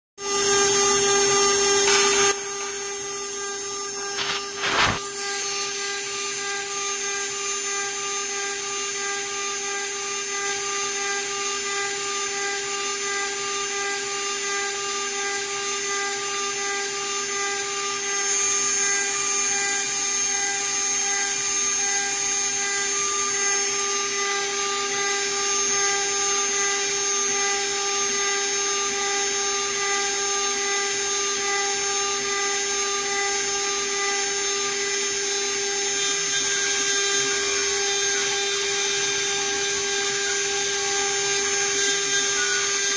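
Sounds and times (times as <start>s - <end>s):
router spindle whine: 0.2s - 42.9s
hiss of metal cutting: 1.6s - 3.4s, 4.0s - 6.2s.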